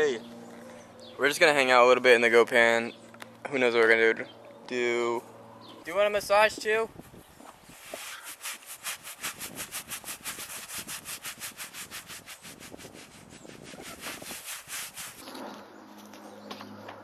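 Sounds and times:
gloves scratching over goat's coat: 0:07.6 - 0:16.2.

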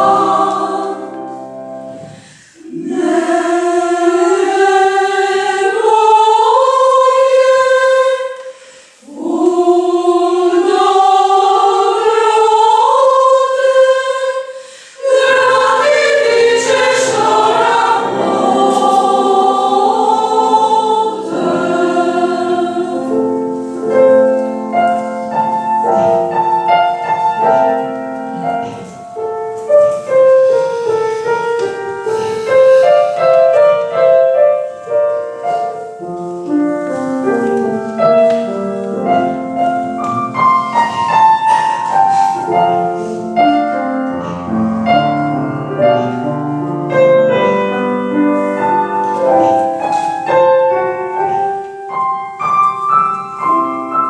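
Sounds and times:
women's choir singing: 0:00.0 - 0:29.2, 0:37.0 - 0:45.2
piano accompaniment: 0:00.0 - 0:54.0.

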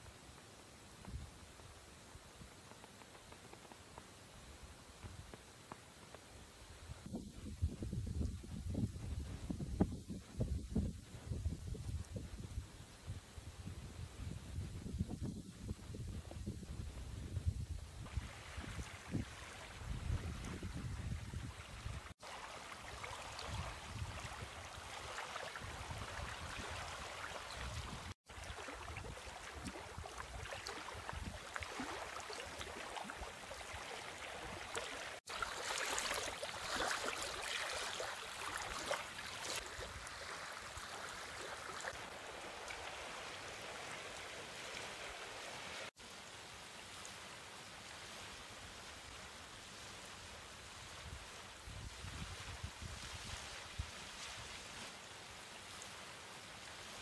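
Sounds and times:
wind buffeting microphone: 0:07.0 - 0:22.1
waves lapping on stony shore: 0:21.6 - 0:57.0.

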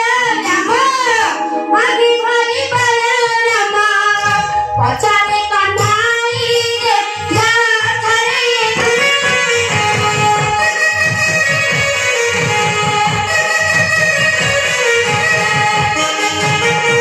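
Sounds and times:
high voice singing devotional melody: 0:00.0 - 0:09.8
steady drum beat: 0:08.6 - 0:17.0.

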